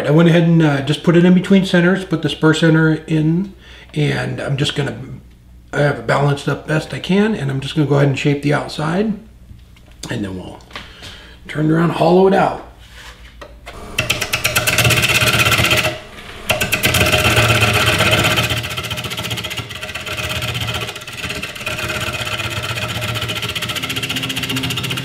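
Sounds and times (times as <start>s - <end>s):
lathe tool cutting wood clicks: 13.7s - 25.0s.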